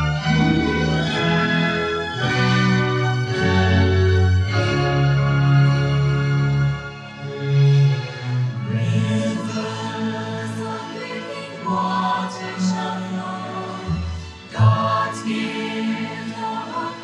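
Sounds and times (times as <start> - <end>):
choir singing: 0.0 - 5.0, 8.5 - 17.0
music: 0.0 - 17.0.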